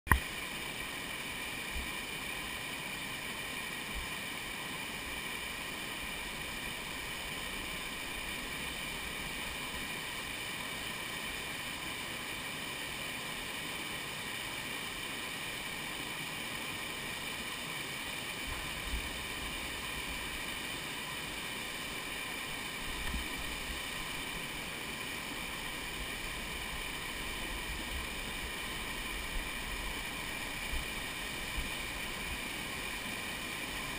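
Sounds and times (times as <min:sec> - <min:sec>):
river rushing over rocks: 0:00.1 - 0:33.9.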